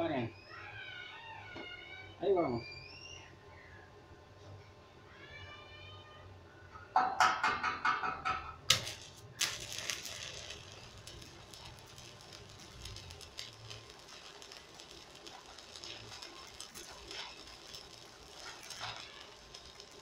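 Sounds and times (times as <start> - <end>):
welding arc crackling sizzle: 8.2 - 20.0
welding arc spitting and clicking: 8.6 - 20.0.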